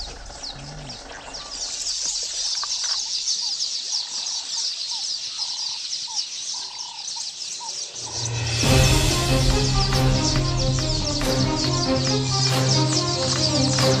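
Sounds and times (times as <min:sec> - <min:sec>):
birds chirping: 0:00.0 - 0:14.0
lower whistled bird notes: 0:06.6 - 0:14.0.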